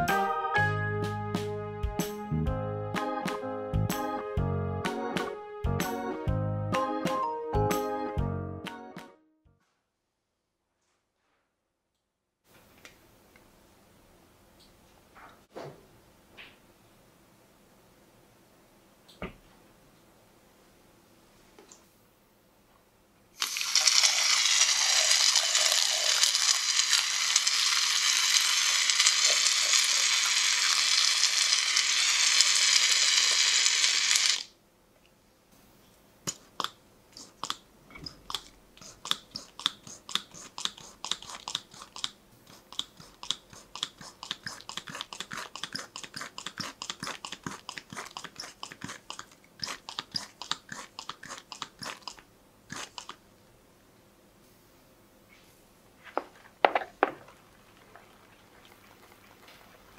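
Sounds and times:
aerosol can spraying hiss: 23.4 - 34.5, 38.8 - 53.1
pump bottle squirting: 23.4 - 34.5, 36.3 - 53.2.

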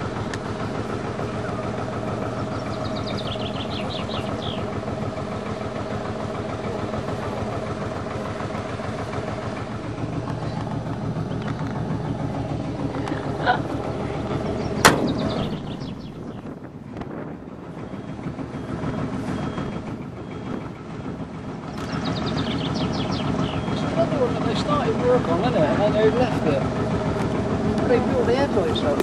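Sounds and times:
engine idling: 0.0 - 29.0
sharp knock: 14.8 - 15.4.

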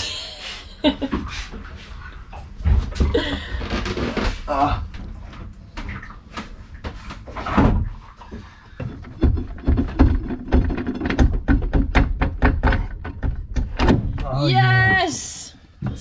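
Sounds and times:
metal knocks and clunks: 5.7 - 14.4.

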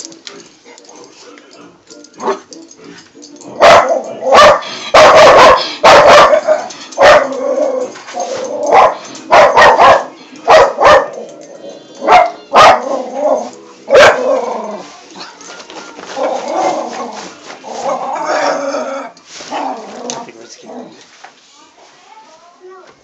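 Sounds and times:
dog barking: 3.6 - 7.4, 8.7 - 11.2, 12.0 - 13.1, 13.9 - 14.4.

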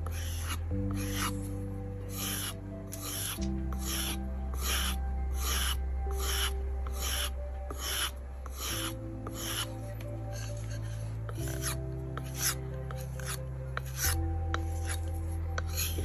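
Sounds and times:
knife scraping on sharpening plate: 2.1 - 9.7, 10.3 - 16.0.

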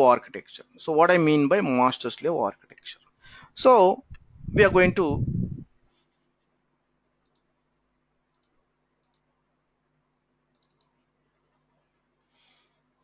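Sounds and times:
faint computer mouse clicks: 7.2 - 7.5, 8.3 - 9.3, 10.5 - 11.0.

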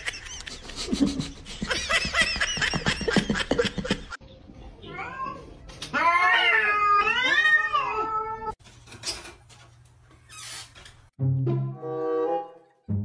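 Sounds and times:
cat meowing: 4.9 - 8.6.

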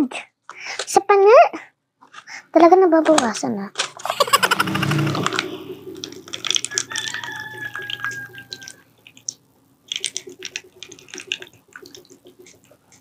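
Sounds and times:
dripping water: 5.1 - 13.0.

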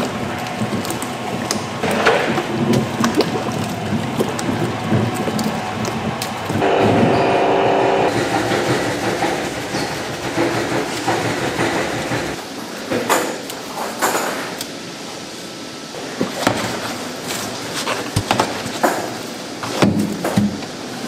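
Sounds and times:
paddle mixer churning paste: 0.0 - 12.4
sharp knocks and clanks: 6.6 - 14.5.

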